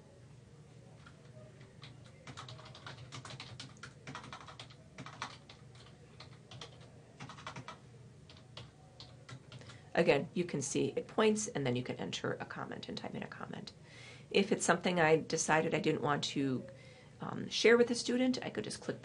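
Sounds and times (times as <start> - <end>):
typing on a keyboard: 1.0 - 9.8.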